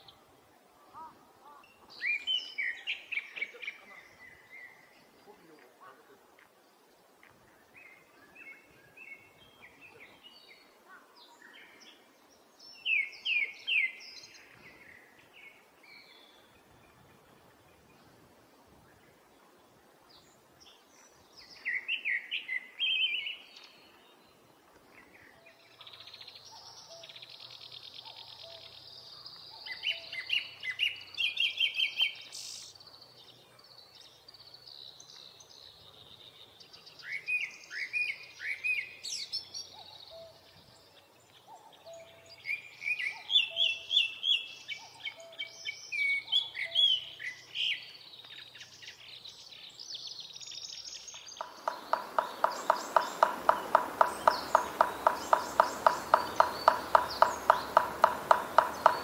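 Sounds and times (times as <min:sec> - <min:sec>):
thrush singing: 0:51.4 - 0:59.0.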